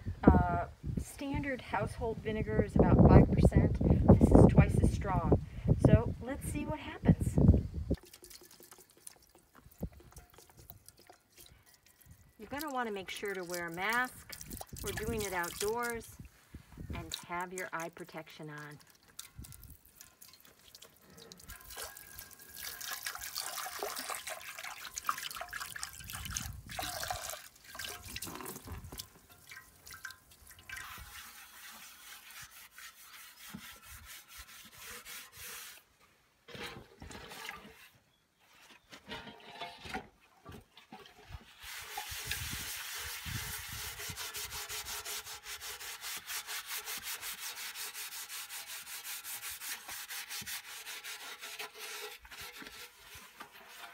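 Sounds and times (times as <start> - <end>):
scrubbing cast iron in liquid: 7.8 - 38.0, 39.1 - 53.9
liquid pouring into plastic tub: 7.9 - 11.9, 13.3 - 16.0, 18.8 - 31.8.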